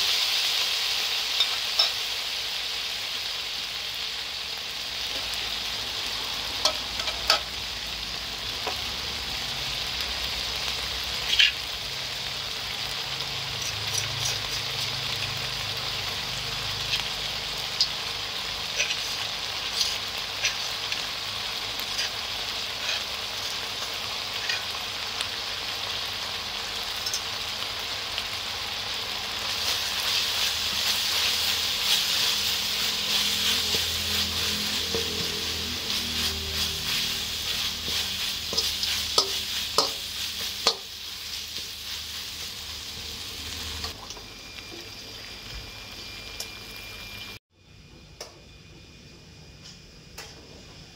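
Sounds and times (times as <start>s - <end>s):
garlic sizzling in hot oil: 0.0s - 47.4s
metal spatula stirring: 18.7s - 21.0s, 21.8s - 24.7s, 29.6s - 42.4s.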